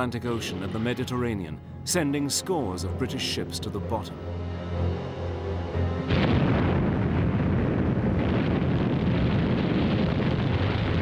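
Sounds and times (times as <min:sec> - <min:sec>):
rumble of explosions: 0:06.0 - 0:11.0
sudden explosion blast: 0:06.0 - 0:11.0.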